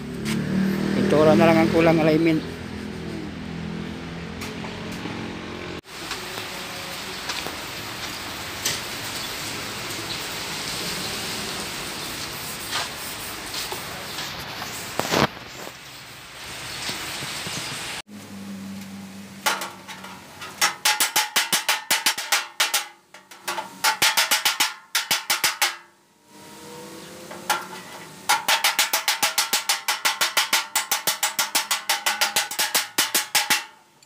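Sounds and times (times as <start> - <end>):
steady hiss: 5.9 - 18.0
rapid metal tapping with ring: 19.5 - 26.0, 27.3 - 33.9.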